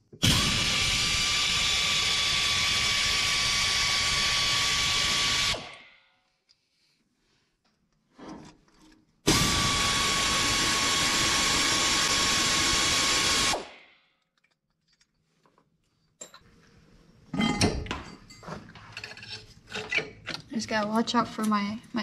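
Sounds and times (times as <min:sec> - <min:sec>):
air ratchet hissing and whirring: 0:00.2 - 0:05.9, 0:09.3 - 0:13.7
metallic clanks and knocks: 0:17.3 - 0:20.9.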